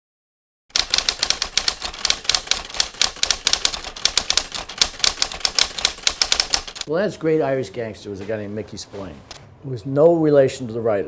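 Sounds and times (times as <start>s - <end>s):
typewriter keys clattering: 0.7s - 6.9s.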